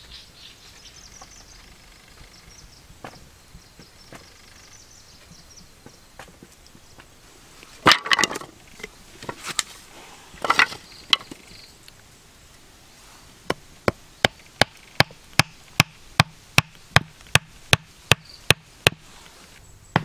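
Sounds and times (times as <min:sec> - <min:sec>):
wooden stake being driven: 0:03.0 - 0:03.2, 0:07.8 - 0:09.7, 0:10.4 - 0:11.4, 0:13.5 - 0:19.1
wooden sticks clattering: 0:07.7 - 0:11.5.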